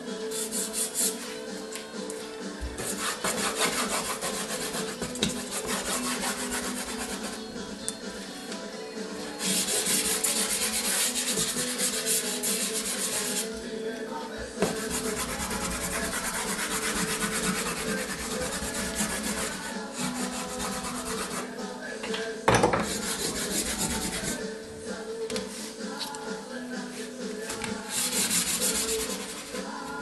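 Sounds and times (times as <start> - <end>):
pastel scraping across paper: 2.8 - 7.4, 9.4 - 13.5, 14.7 - 21.5, 27.9 - 29.7.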